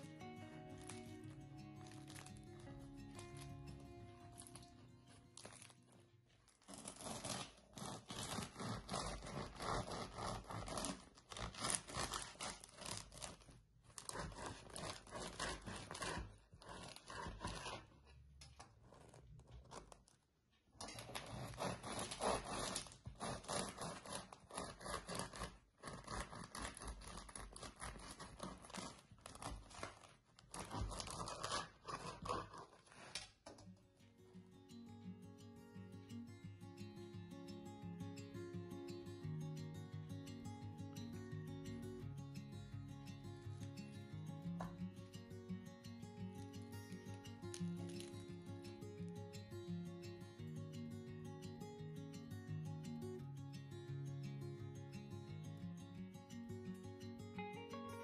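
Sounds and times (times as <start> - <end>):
bread crust crackling as torn: 0.8 - 17.9, 20.8 - 33.6, 47.4 - 48.3
bread knife sawing through crust: 6.7 - 13.4, 14.0 - 18.0, 20.9 - 33.2.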